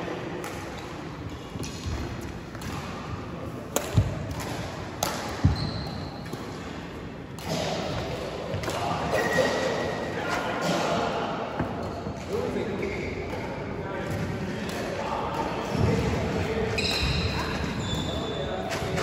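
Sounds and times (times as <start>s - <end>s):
background murmur: 0.0s - 19.0s.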